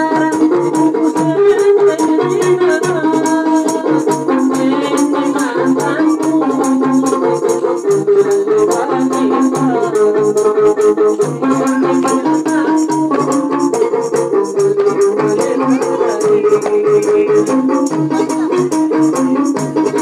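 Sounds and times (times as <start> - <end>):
amplified lute melody: 0.0 - 20.0.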